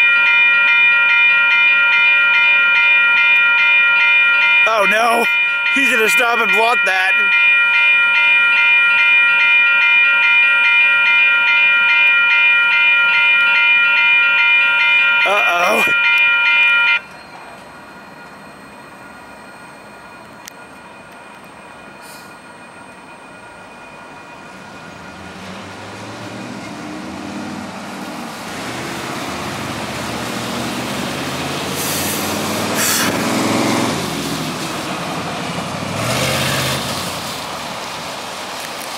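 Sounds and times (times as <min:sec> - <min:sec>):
railroad crossing bell ringing: 0:00.0 - 0:38.2
vehicles driving past: 0:24.5 - 0:38.9.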